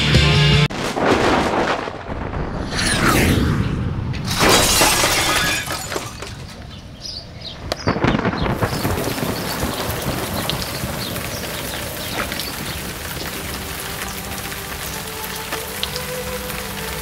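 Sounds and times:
music: 0:00.0 - 0:00.7, 0:13.2 - 0:17.0
loud crashes: 0:00.7 - 0:06.7
rushing noises: 0:00.7 - 0:06.7.

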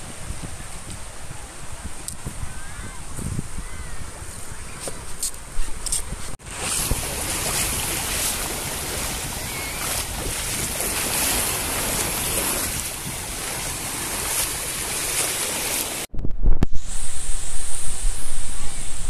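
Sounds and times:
small waves washing ashore: 0:05.8 - 0:16.1.

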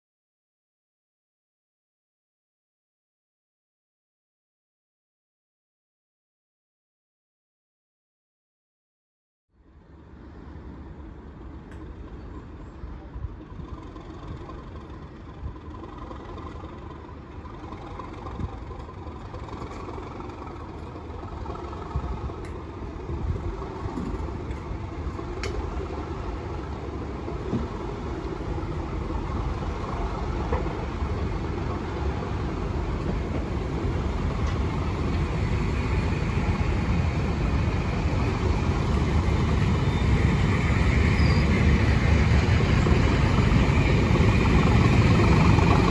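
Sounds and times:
diesel locomotive engine: 0:09.6 - 0:45.9.

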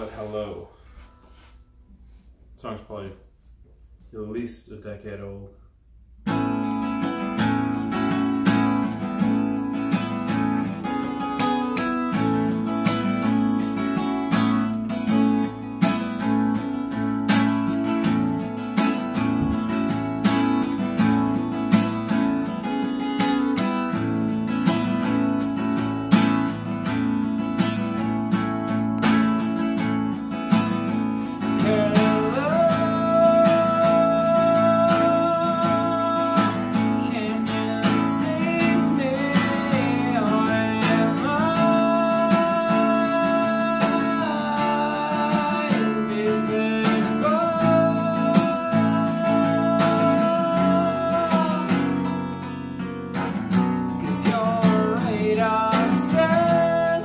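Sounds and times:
acoustic guitar strumming: 0:06.2 - 0:57.0
man singing: 0:11.8 - 0:13.4, 0:31.3 - 0:52.4, 0:54.0 - 0:57.0.

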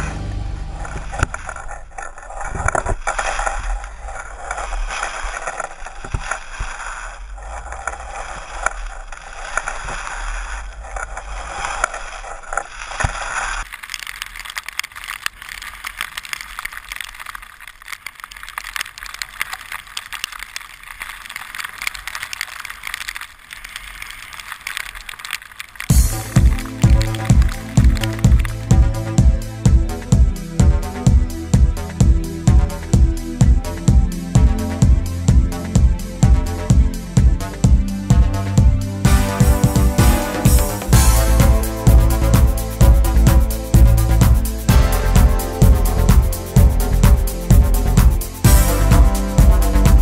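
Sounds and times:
skis sliding on snow: 0:00.0 - 0:50.0.

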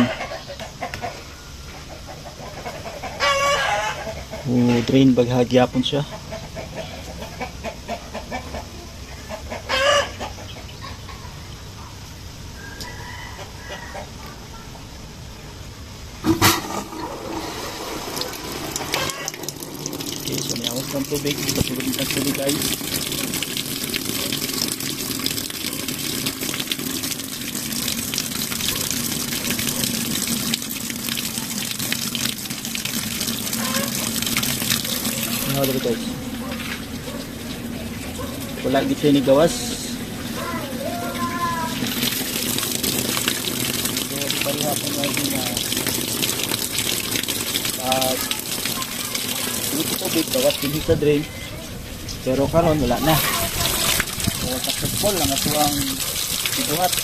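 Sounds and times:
chicken squawk: 0:00.0 - 0:04.5, 0:06.2 - 0:11.4, 0:12.6 - 0:14.4, 0:18.8 - 0:19.4, 0:33.6 - 0:34.2
chickens clucking: 0:00.0 - 0:04.9, 0:05.6 - 0:12.0, 0:16.3 - 0:19.7, 0:33.5 - 0:41.8
water filling washing machine: 0:16.2 - 0:57.0.

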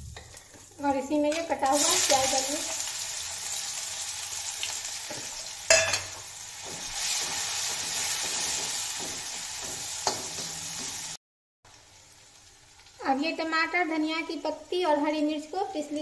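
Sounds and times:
onion sizzling in oil: 0:00.0 - 0:16.0
metal clank against pan: 0:05.1 - 0:07.4, 0:08.2 - 0:11.0.

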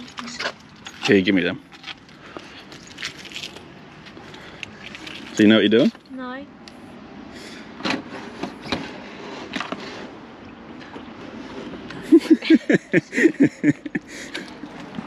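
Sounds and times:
liquid glugging out: 0:04.7 - 0:05.5.

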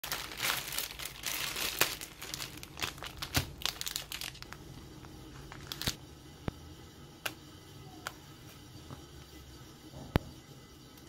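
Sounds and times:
papers crinkling and rustling: 0:00.0 - 0:06.0.

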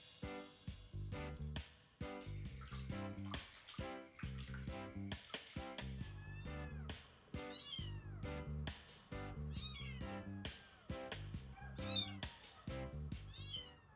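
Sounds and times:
background music: 0:00.0 - 0:13.9
kitten meowing: 0:06.0 - 0:08.2, 0:09.5 - 0:10.4, 0:11.6 - 0:12.6, 0:13.2 - 0:13.9.

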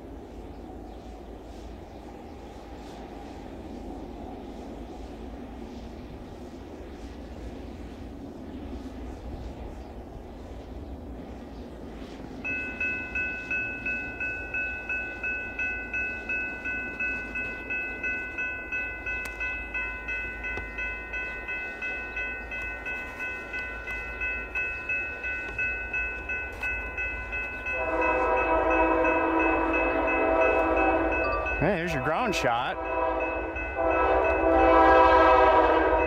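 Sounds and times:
crossing bell ringing: 0:12.4 - 0:36.0
locomotive horn: 0:27.7 - 0:36.0.

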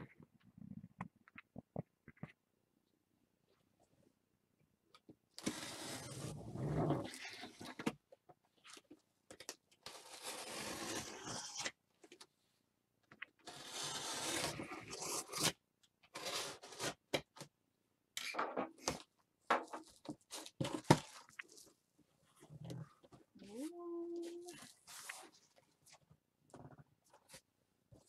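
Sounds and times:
knife slitting packing tape: 0:13.5 - 0:15.6.

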